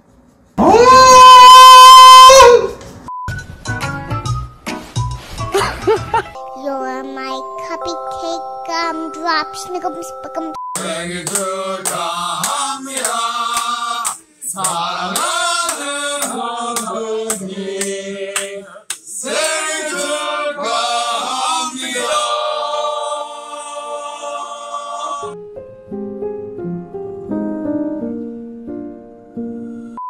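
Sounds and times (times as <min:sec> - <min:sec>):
hands clapping: 0:10.8 - 0:19.6
group of men singing: 0:10.8 - 0:25.3.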